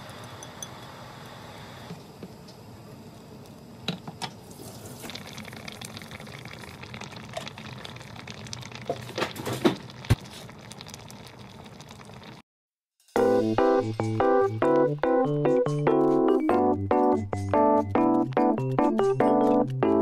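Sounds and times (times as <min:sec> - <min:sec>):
stew bubbling in a pot: 0:03.0 - 0:12.4
food plopping into pot: 0:04.7 - 0:12.3
piano music: 0:13.2 - 0:20.0.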